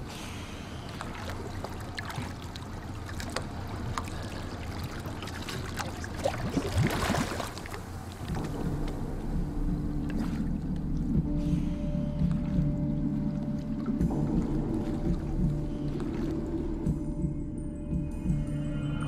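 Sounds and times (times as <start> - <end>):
water sloshing and splashing: 0.0 - 17.4
low steady hum: 0.0 - 19.0
bubbling gurgle: 0.9 - 11.2.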